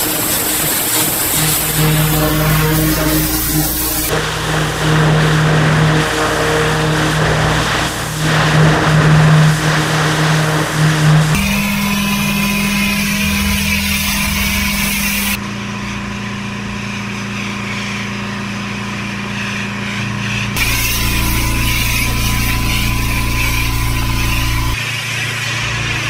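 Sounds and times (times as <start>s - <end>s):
pressure washer engine running: 0.0s - 15.4s, 20.6s - 24.8s
water jet spraying: 0.0s - 15.4s, 20.6s - 24.8s.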